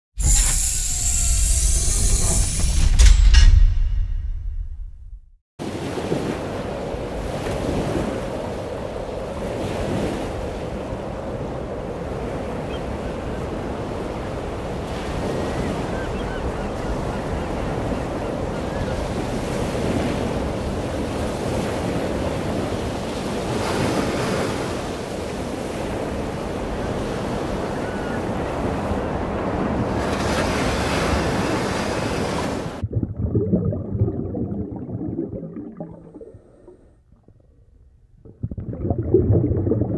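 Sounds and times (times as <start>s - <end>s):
ocean waves breaking: 5.6s - 37.0s
muffled underwater rumble: 32.8s - 39.9s.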